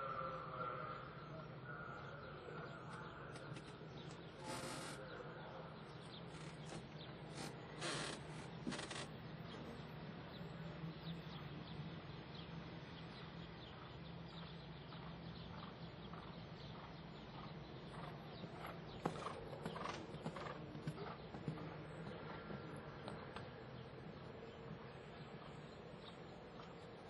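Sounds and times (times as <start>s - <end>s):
horse hoofbeats on sand: 13.7s - 26.8s.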